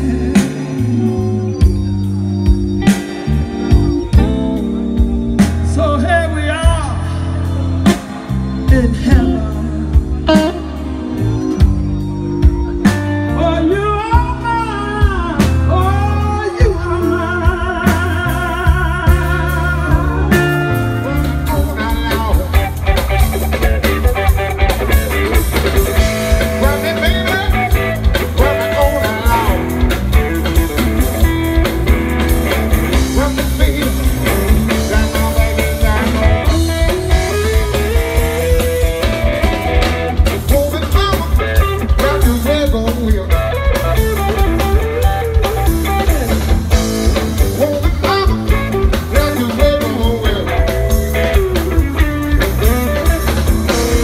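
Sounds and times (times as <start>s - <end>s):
bass: 0.0s - 54.0s
drums: 0.0s - 54.0s
electric guitar lead lines: 0.0s - 54.0s.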